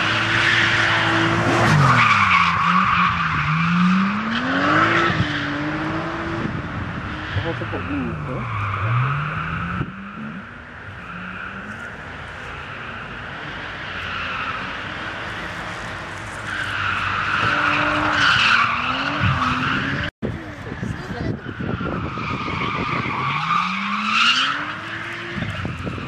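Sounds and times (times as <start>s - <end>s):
car engine revving: 0.0s - 26.0s.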